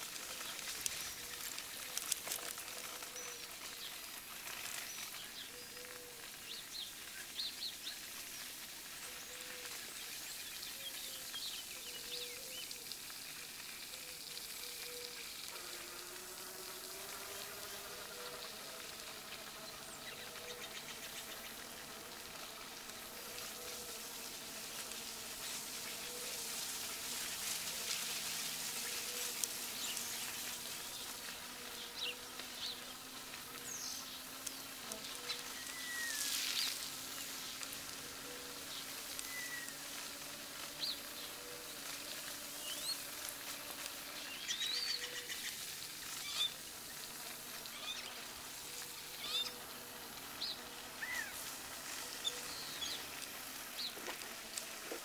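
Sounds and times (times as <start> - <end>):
birds chirping: 0.0 - 13.0, 13.8 - 54.8
faint motor whine: 0.0 - 55.0
tyre and wind hiss: 22.6 - 55.0.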